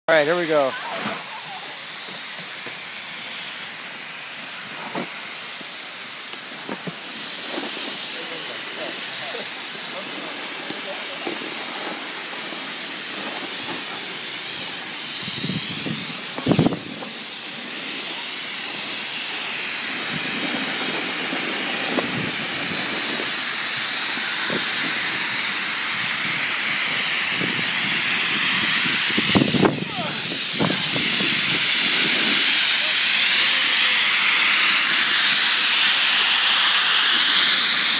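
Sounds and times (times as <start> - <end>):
snowboard scraping over snow: 0.1 - 2.8, 4.6 - 5.7, 6.3 - 37.9
low wind buffets: 15.0 - 17.2, 24.3 - 32.6
wind on microphone: 15.2 - 17.2, 20.0 - 23.4, 24.4 - 32.6.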